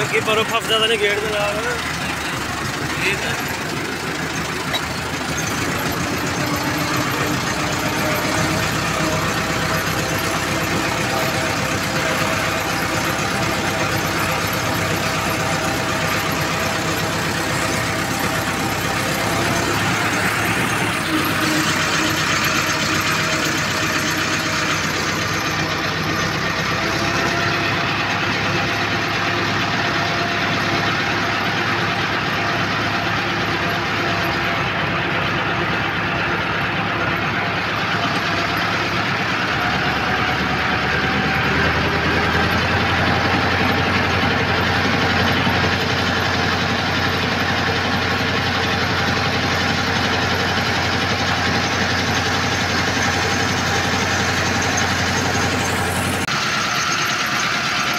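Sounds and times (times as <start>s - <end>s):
tractor diesel engine running: 0.0s - 57.9s.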